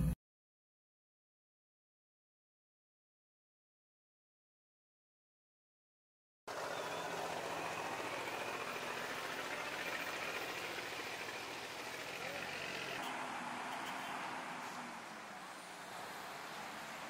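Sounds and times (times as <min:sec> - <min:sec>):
dump truck engine running: 0:06.5 - 0:17.0
road noise: 0:06.5 - 0:17.0.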